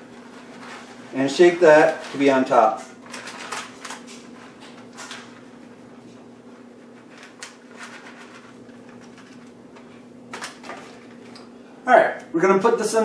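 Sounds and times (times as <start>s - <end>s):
steady low hum: 0.0s - 13.0s
plastic bag crinkling: 0.1s - 5.8s, 6.8s - 11.4s.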